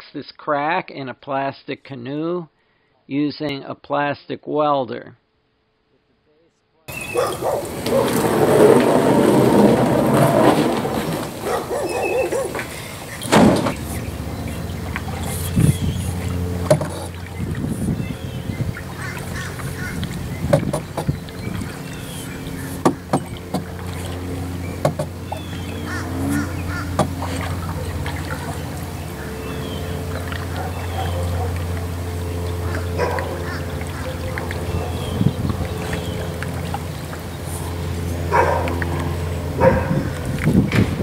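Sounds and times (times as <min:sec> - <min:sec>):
birds calling: 0:06.9 - 0:40.5
paddle stroking through water: 0:06.9 - 0:41.0
steady low hum: 0:06.9 - 0:41.0
paddle knocking against canoe: 0:07.0 - 0:18.0, 0:18.6 - 0:28.9.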